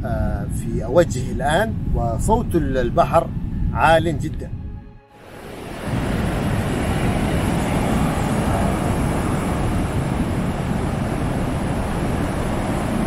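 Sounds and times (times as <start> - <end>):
heavy surf breaking waves: 5.2 - 13.0.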